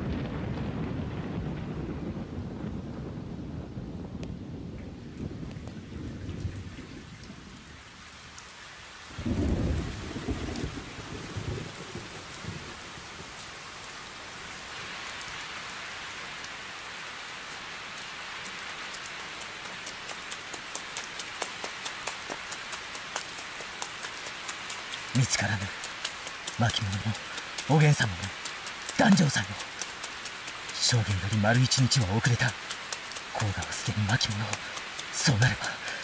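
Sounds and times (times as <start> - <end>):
thunder rumble: 0.0 - 7.9, 9.1 - 13.2
steady rain: 0.0 - 36.0
drips pattering: 17.5 - 36.0.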